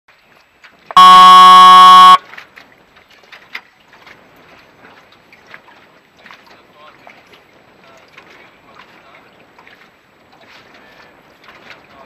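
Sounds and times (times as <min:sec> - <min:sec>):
signal horn blast: 0:00.9 - 0:02.2.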